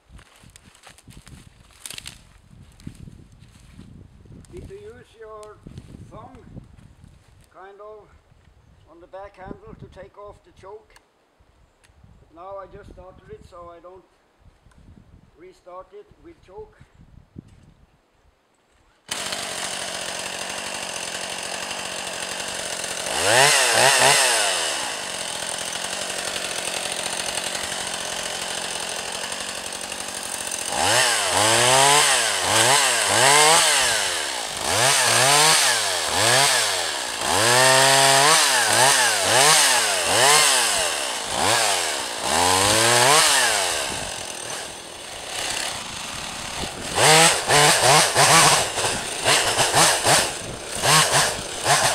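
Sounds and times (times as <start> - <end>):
chainsaw engine idling and revving: 19.1 - 51.9
chainsaw sawing through log: 19.1 - 51.9.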